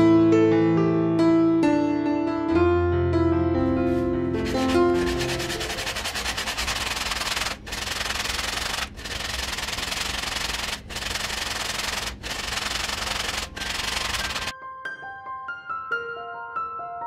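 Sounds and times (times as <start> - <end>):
wood sanding rasp: 4.4 - 14.5.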